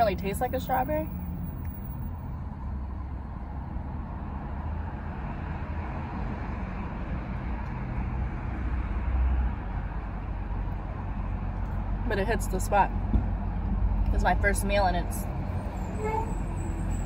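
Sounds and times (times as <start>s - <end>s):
low vehicle rumble in cabin: 0.0s - 4.2s.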